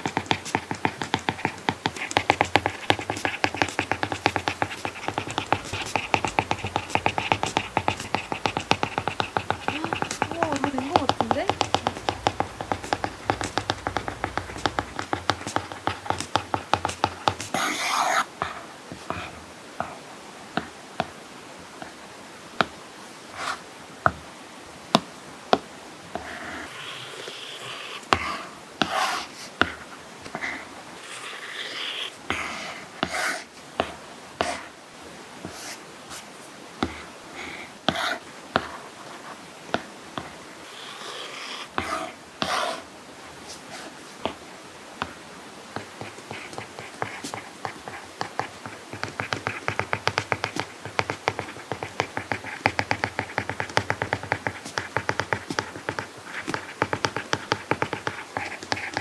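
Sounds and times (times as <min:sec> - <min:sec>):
stylus tapping on tablet screen: 0:00.0 - 0:17.9, 0:36.8 - 0:37.0, 0:45.0 - 0:59.0
stylus scratchy drawing strokes: 0:00.0 - 0:19.3, 0:40.8 - 0:43.8, 0:45.8 - 0:59.0.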